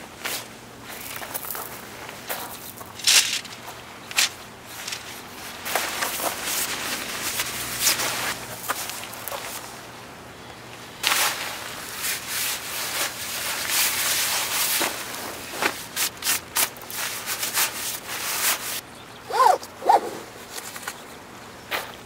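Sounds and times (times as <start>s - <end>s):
rubbing and rustling: 0.2s - 9.7s, 11.0s - 18.8s.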